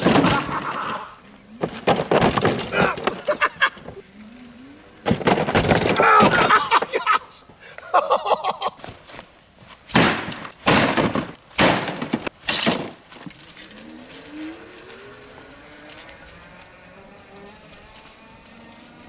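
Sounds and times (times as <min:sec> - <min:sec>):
bike and metal table crashing: 0:00.0 - 0:04.0, 0:05.0 - 0:07.0, 0:09.9 - 0:13.9
electric motor whine: 0:13.4 - 0:19.0.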